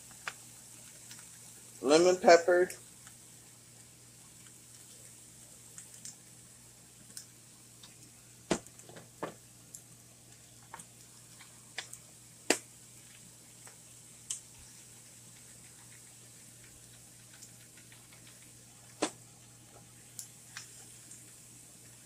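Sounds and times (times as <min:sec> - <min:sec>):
spice shakers clicking and tapping: 0:10.6 - 0:19.0.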